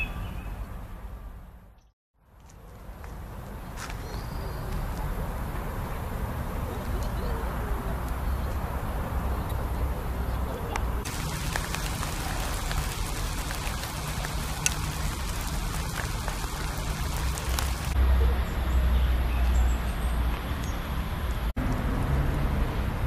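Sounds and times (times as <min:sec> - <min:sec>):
rain hissing: 0:11.0 - 0:18.0
deep rumble: 0:11.1 - 0:18.0
raindrop hits: 0:11.1 - 0:18.0.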